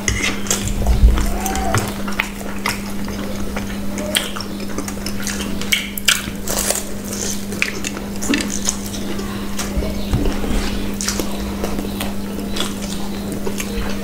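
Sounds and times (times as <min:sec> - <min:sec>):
chewing and crunching: 0:00.0 - 0:14.0
low hum: 0:00.5 - 0:03.9.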